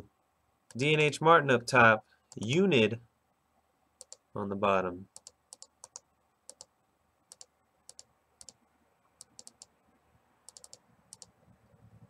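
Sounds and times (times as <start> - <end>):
computer mouse and keyboard clicks: 4.0 - 4.2, 5.2 - 6.7, 7.3 - 8.6, 9.2 - 9.7, 10.5 - 11.3.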